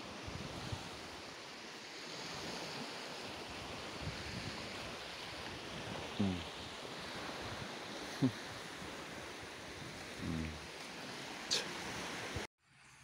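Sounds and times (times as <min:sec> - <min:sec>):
sea surf: 0:00.0 - 0:12.5
wind: 0:00.0 - 0:13.0.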